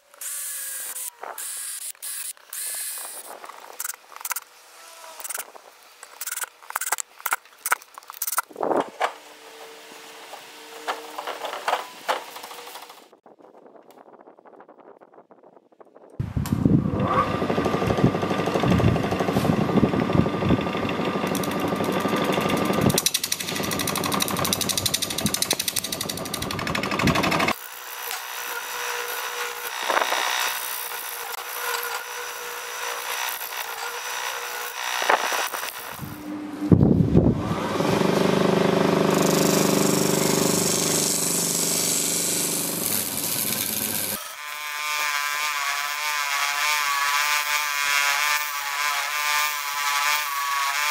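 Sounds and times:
lathe tool scraping and chattering: 17.2s - 36.3s, 37.9s - 44.2s.

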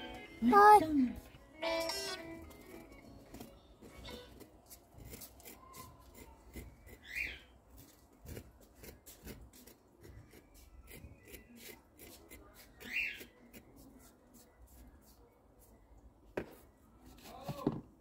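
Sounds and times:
fingers rubbing wet cement: 4.1s - 15.9s.

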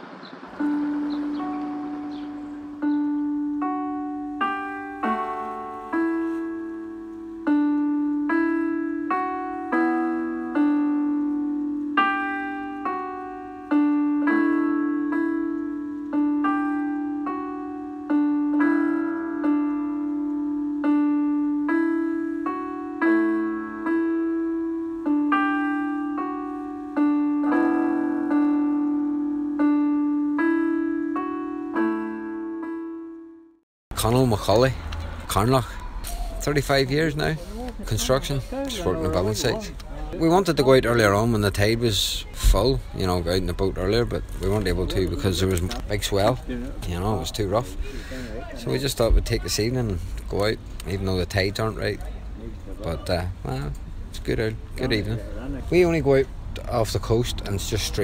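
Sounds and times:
slow solo piano melody: 0.1s - 33.6s.

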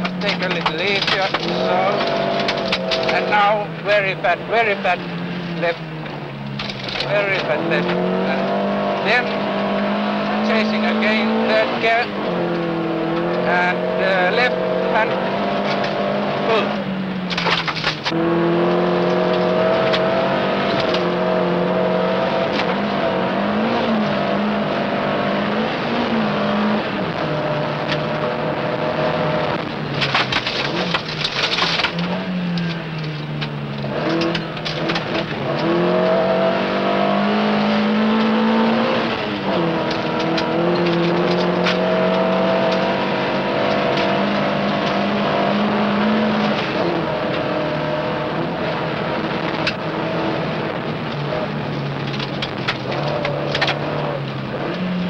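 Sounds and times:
gravel rattling: 0.0s - 21.4s, 26.2s - 36.3s, 38.4s - 55.0s
rally car engine at full throttle: 0.0s - 55.0s.

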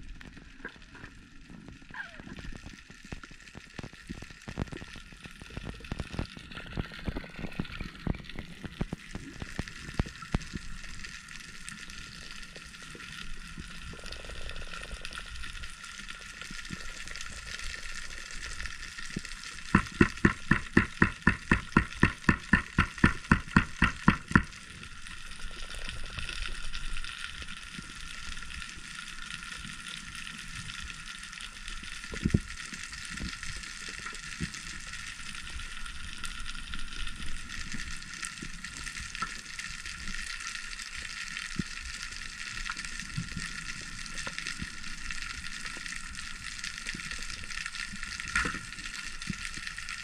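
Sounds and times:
underwater crackling hiss: 0.0s - 50.0s
sharp evenly spaced clicks: 19.7s - 24.6s.

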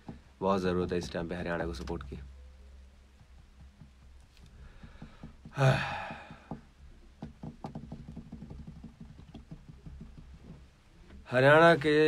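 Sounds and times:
breathy burst near microphone: 4.5s - 6.6s.

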